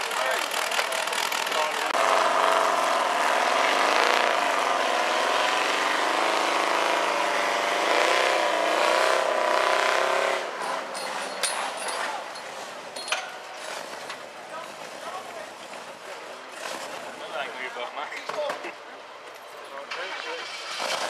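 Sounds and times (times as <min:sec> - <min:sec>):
buggy engine revving: 0:00.0 - 0:14.4, 0:15.8 - 0:17.4, 0:19.9 - 0:21.0
light clatter: 0:10.7 - 0:17.1.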